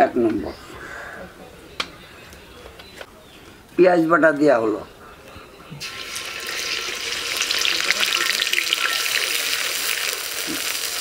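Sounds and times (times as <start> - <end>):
paste sizzling in hot oil: 5.8 - 11.0.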